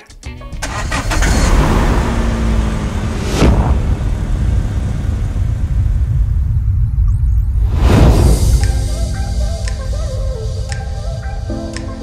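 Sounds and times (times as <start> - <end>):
music: 0.0 - 1.2, 7.9 - 12.0
car engine starting and running: 0.5 - 8.7
short whoosh: 3.0 - 6.7, 7.5 - 9.2.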